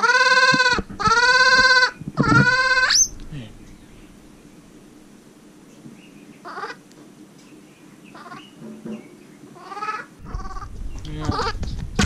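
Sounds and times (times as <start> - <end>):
baby monkey calling: 0.0 - 3.2, 6.4 - 6.8, 8.1 - 8.6, 9.6 - 11.6
microphone handling rumble: 0.6 - 6.0, 10.2 - 12.0.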